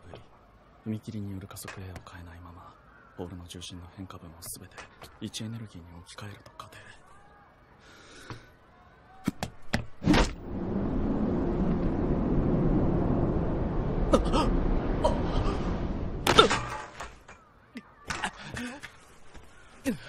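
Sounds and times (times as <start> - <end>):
long rushing whoosh: 10.2 - 16.2.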